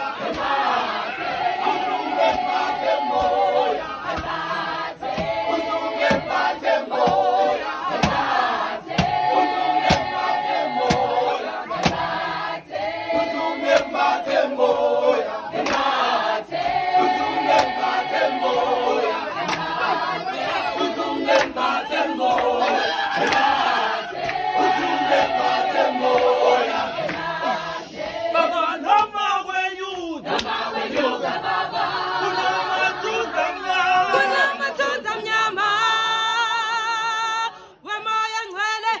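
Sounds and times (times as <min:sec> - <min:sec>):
group singing in chorus: 0:00.0 - 0:29.1, 0:30.1 - 0:39.0
hand claps: 0:00.2 - 0:00.8, 0:02.2 - 0:03.4, 0:04.1 - 0:07.2, 0:07.9 - 0:11.1, 0:11.8 - 0:12.1, 0:13.7 - 0:14.0, 0:15.5 - 0:16.2, 0:17.4 - 0:18.2, 0:19.4 - 0:19.8, 0:21.3 - 0:26.4, 0:27.0 - 0:27.4, 0:30.3 - 0:31.2.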